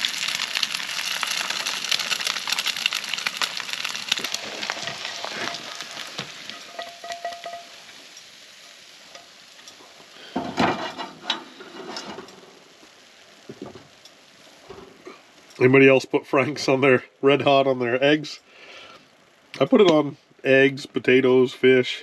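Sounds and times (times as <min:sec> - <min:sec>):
food sizzling in a frying pan: 0:00.0 - 0:15.6
pan and spatula knocks and scrapes: 0:10.4 - 0:12.2.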